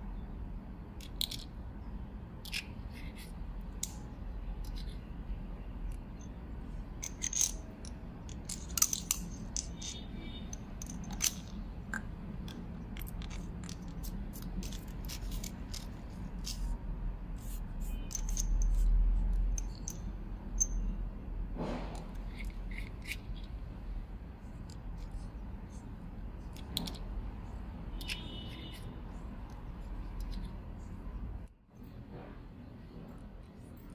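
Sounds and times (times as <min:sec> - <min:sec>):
steady low hum: 0:00.0 - 0:33.9
flashlight parts clicking and scraping: 0:02.4 - 0:05.0, 0:07.0 - 0:11.6, 0:12.4 - 0:16.8, 0:17.4 - 0:20.0, 0:21.9 - 0:23.6, 0:26.4 - 0:27.1.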